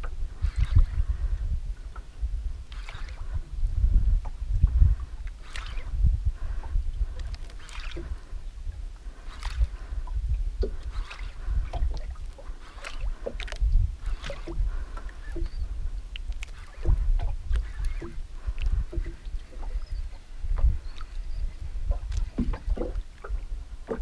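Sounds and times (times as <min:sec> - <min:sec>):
low uneven rumble: 0:00.0 - 0:24.0
water lapping against boat hull: 0:00.0 - 0:24.0
short splashes and knocks: 0:05.3 - 0:05.9, 0:07.2 - 0:08.1, 0:09.3 - 0:09.8, 0:10.6 - 0:20.0, 0:20.6 - 0:24.0.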